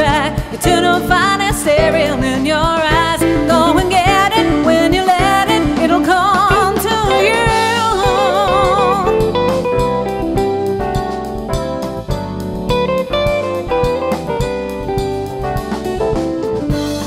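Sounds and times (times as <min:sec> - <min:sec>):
woman singing: 0:00.0 - 0:09.5
guitar and band playing: 0:00.0 - 0:17.0.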